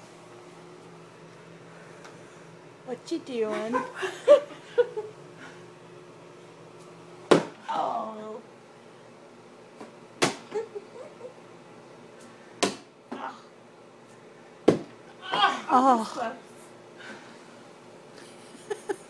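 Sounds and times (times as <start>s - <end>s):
objects smacking against wall: 7.3s - 7.6s, 9.8s - 10.5s, 12.6s - 12.9s, 14.6s - 15.5s.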